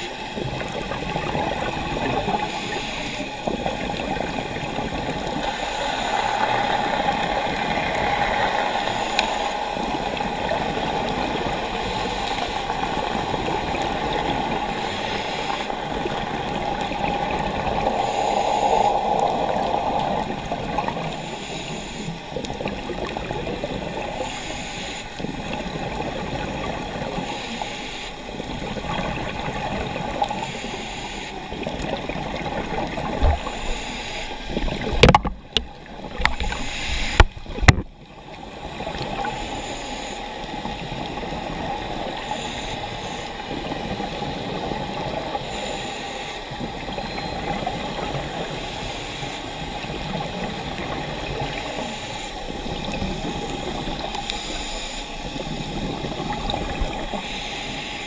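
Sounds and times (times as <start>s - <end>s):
bubbles: 0.0s - 21.3s, 28.4s - 30.4s, 31.4s - 39.6s, 55.3s - 57.3s
muffled underwater noise: 0.0s - 58.0s
scuba regulator breathing: 2.3s - 3.6s, 5.2s - 10.6s, 11.5s - 16.6s, 17.6s - 22.4s, 24.0s - 25.3s, 27.1s - 28.4s, 30.0s - 31.6s, 33.2s - 34.9s, 36.1s - 37.6s, 39.2s - 40.5s, 45.3s - 46.9s, 53.2s - 56.0s, 57.0s - 58.0s.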